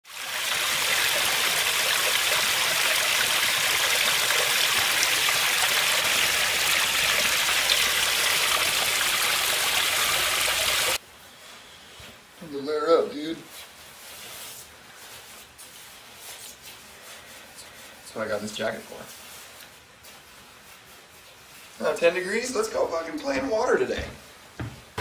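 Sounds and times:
stream splashing over rocks: 0.1 - 11.0.

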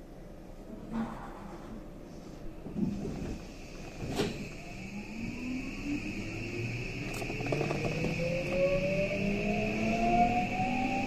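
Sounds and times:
train motors whining: 2.8 - 11.0
steady high tone: 4.4 - 11.0.

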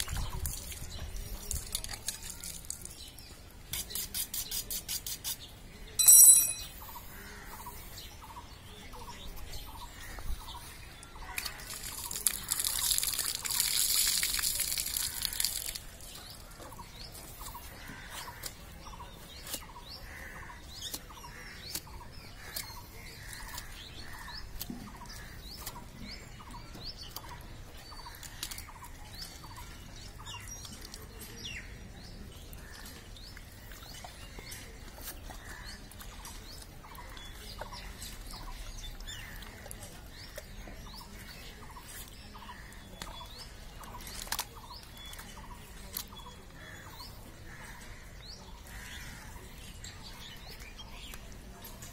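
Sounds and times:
small birds chirping: 0.0 - 51.9
short ringing scrape: 6.0 - 6.9.

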